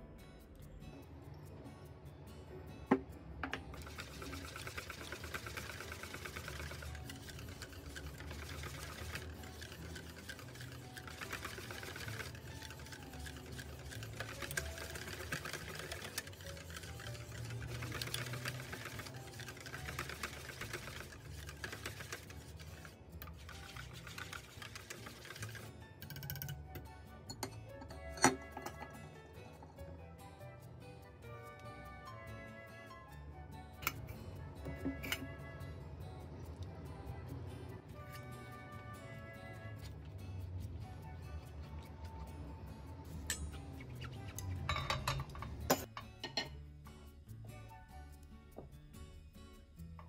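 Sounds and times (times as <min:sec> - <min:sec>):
whisk clicking against metal bowl: 0:03.7 - 0:26.6.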